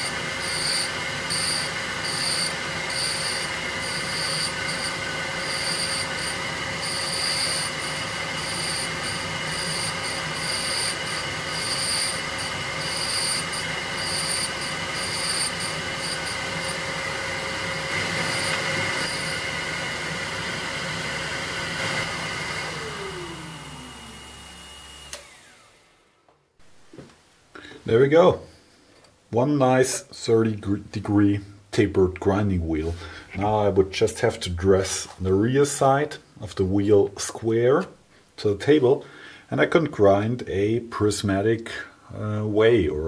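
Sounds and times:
high grinding hiss: 0:00.0 - 0:19.6
grinder spindle whine: 0:00.0 - 0:26.1.

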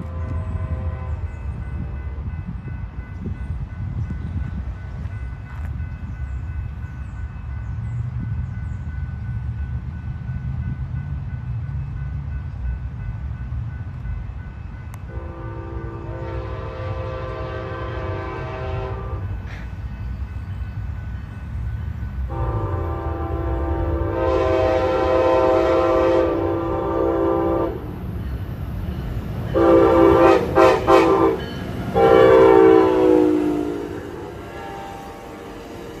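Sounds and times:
locomotive air horn blasts: 0:00.0 - 0:02.1, 0:15.1 - 0:19.4, 0:22.3 - 0:27.9, 0:29.5 - 0:35.6
train rumble: 0:00.0 - 0:36.0.

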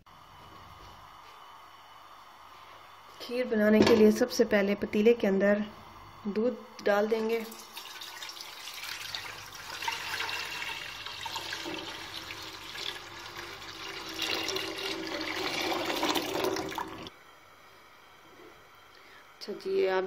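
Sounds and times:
milk pouring into metal pot: 0:07.4 - 0:17.1.

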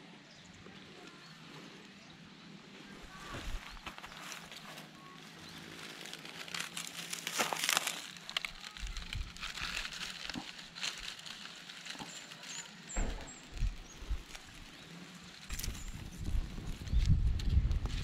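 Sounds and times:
dry grass rustling: 0:00.9 - 0:18.0.

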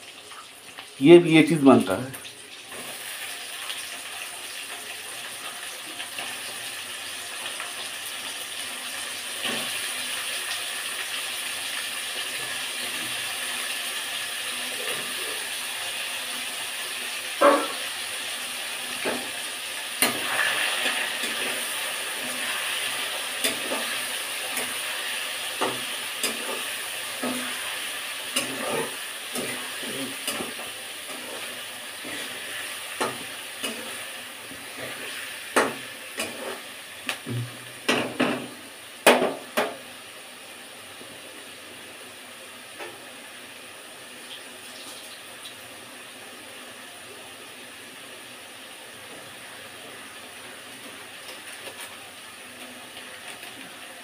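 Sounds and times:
fish sizzling in hot oil: 0:02.2 - 0:54.0.

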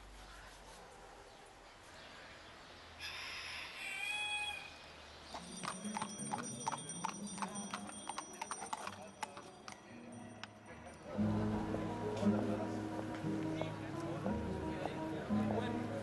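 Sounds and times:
horse hooves clip-clopping on stone: 0:05.3 - 0:10.6.

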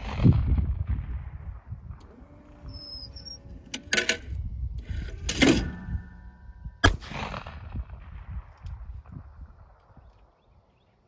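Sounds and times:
shotgun firing: 0:00.0 - 0:02.0, 0:06.8 - 0:09.8.

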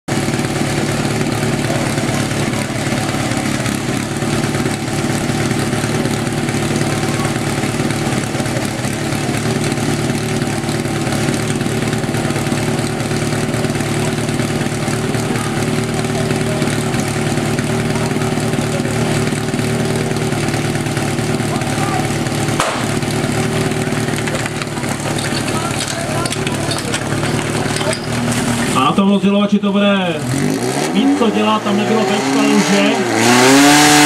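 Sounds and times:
small pump engine idling: 0:00.1 - 0:30.1
murmur of voices: 0:00.9 - 0:05.6, 0:06.2 - 0:09.2, 0:14.0 - 0:29.0.

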